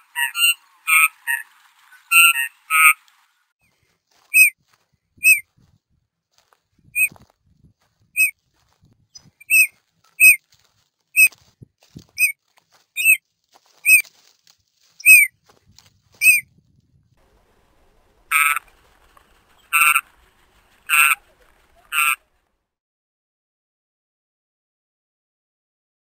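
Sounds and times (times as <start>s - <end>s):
bird calling: 0.0s - 4.5s, 5.2s - 5.4s, 8.2s - 8.4s, 9.2s - 10.4s, 12.2s - 12.4s, 13.0s - 13.2s, 13.8s - 14.1s, 15.0s - 15.3s, 16.2s - 16.4s, 17.4s - 22.4s.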